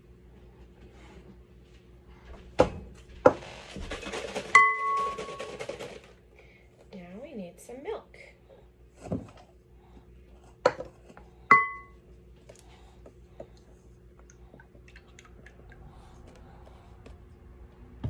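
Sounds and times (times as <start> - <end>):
ringing glass clink: 11.5 - 12.0.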